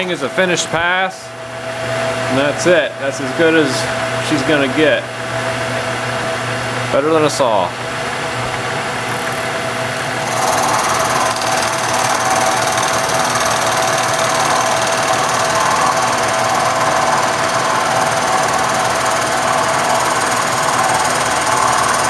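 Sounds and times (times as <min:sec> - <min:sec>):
milling machine spindle hum: 0:00.0 - 0:22.0
end mill cutting wood: 0:08.9 - 0:22.0.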